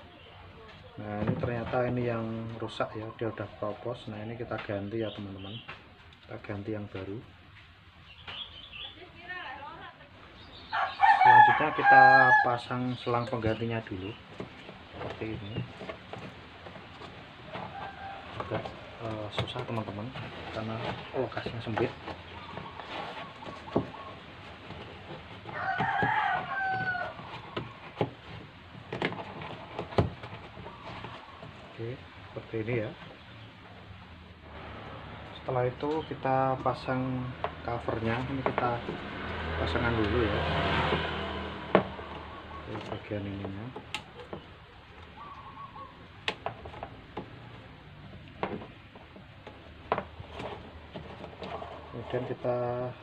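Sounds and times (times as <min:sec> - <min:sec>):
bird calling: 0:08.0 - 0:09.4, 0:10.2 - 0:28.4, 0:29.3 - 0:34.1, 0:41.8 - 0:49.8, 0:51.2 - 0:53.0
rooster crowing: 0:10.7 - 0:12.8, 0:17.5 - 0:19.0, 0:25.5 - 0:27.6
plastic hose clicking and knocking: 0:23.4 - 0:31.6, 0:40.0 - 0:45.1, 0:46.1 - 0:51.7.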